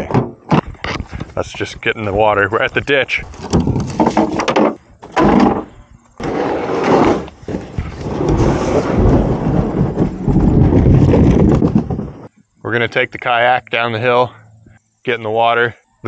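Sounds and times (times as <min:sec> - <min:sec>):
plastic hull scraping: 0:03.1 - 0:12.3.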